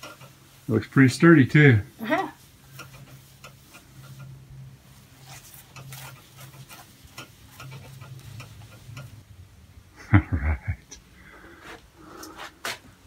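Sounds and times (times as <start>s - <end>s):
small ticks and knocks: 2.7s - 4.4s, 5.5s - 9.2s.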